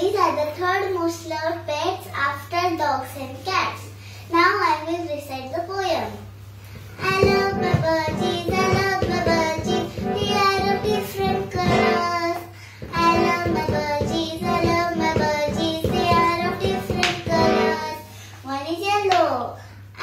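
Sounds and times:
girl reciting in sing-song voice: 7.0s - 20.0s.

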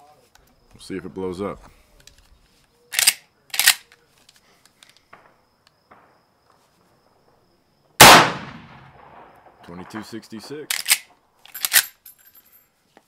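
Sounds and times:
rifle shot with echo: 8.0s - 10.2s.

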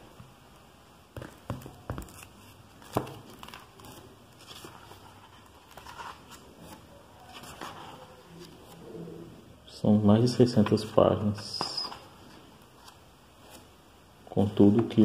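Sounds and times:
paper pages rustling: 1.7s - 8.8s
sharp knocks of a book: 2.8s - 3.3s.

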